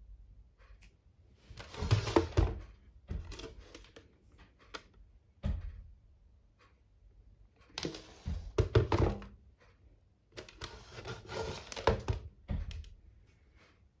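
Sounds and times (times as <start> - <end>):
desk fan knocking and rattling: 1.6 - 6.2, 7.6 - 9.6, 10.3 - 13.1.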